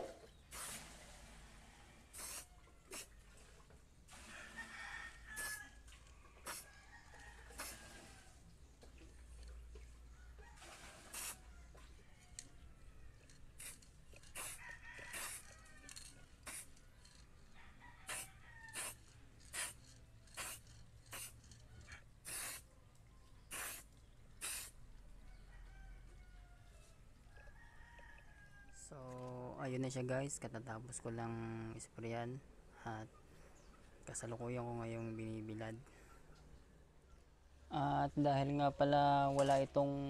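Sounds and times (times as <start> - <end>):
hissing spray bursts: 0.5 - 1.4, 2.1 - 3.1, 6.4 - 6.7, 7.5 - 7.8, 11.0 - 11.4, 13.6 - 13.8, 14.4 - 15.5, 16.4 - 16.7, 18.1 - 21.4, 22.2 - 22.7, 23.5 - 24.8
rooster crowing: 4.2 - 8.4, 14.4 - 16.1, 17.5 - 19.0.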